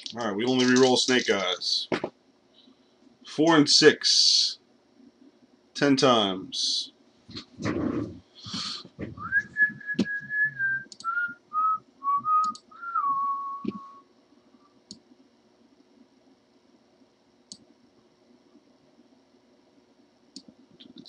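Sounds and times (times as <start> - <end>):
person whistling a tune: 9.2 - 14.0.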